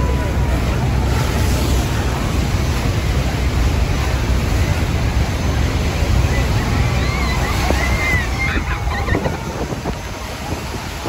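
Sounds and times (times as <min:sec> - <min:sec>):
churning river water: 0:00.0 - 0:11.0
wind buffeting microphone: 0:00.0 - 0:11.0
wind rushing: 0:07.4 - 0:11.0.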